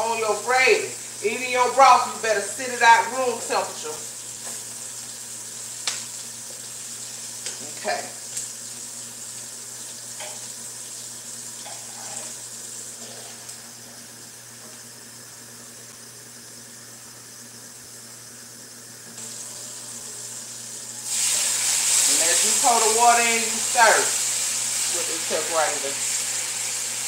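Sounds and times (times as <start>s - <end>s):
water hissing in hot pan: 0.0s - 16.8s, 19.0s - 27.0s
roux sizzling in a skillet: 2.9s - 15.8s, 19.1s - 27.0s.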